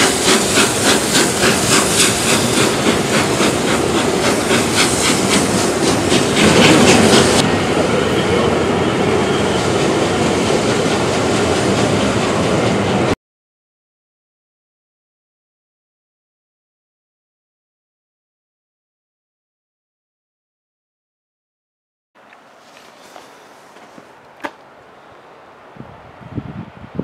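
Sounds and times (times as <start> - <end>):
steam train running past: 0.0 - 13.2, 22.4 - 26.8
train rumble: 0.0 - 13.2, 22.4 - 27.0.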